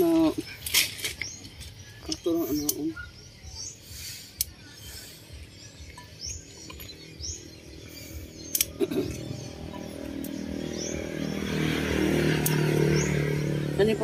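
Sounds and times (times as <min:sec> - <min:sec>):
bird chirping: 0:00.0 - 0:14.0
pruning shears snipping: 0:08.5 - 0:09.4, 0:12.3 - 0:13.0.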